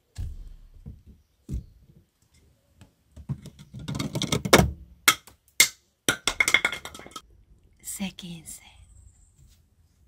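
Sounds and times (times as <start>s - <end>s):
thump: 0.1s - 1.6s.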